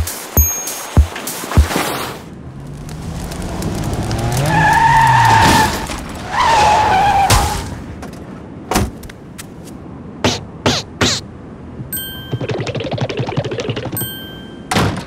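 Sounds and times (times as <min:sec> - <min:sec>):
tyre screeches: 0:04.2 - 0:07.7.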